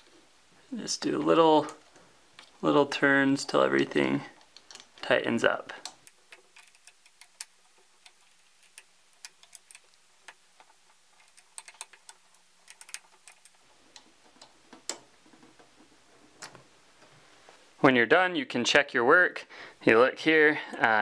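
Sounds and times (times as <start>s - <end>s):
hex key metallic clicks: 5.8s - 10.4s, 11.2s - 15.0s.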